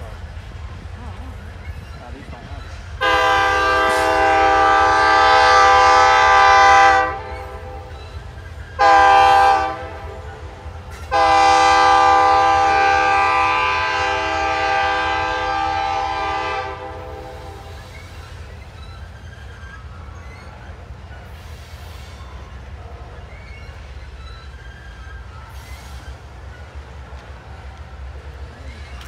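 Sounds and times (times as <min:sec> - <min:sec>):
train rumbling by: 0:00.0 - 0:29.0
locomotive air horn blasts: 0:03.0 - 0:07.9, 0:08.8 - 0:17.7.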